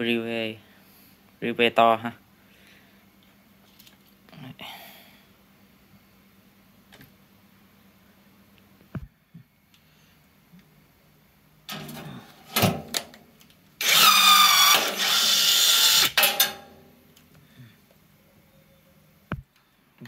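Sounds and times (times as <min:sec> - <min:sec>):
rivet gun motor whine: 0:13.8 - 0:16.2.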